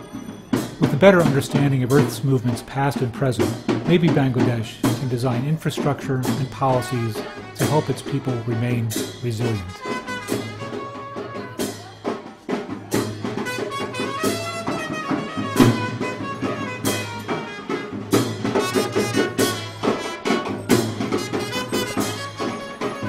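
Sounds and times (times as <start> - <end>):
drum and cymbal beats: 0.0 - 23.0
brass band playing: 6.1 - 11.9, 13.2 - 23.0
horns playing melody: 6.6 - 11.8, 13.4 - 23.0.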